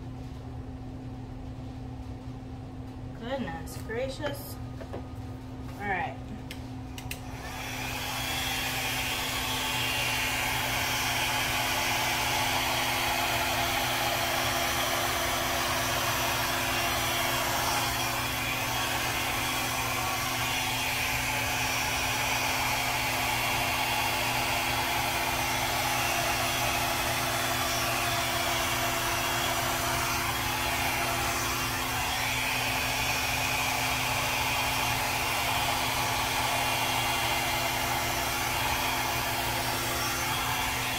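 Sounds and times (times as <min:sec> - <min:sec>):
hair dryer running: 0:05.8 - 0:40.9.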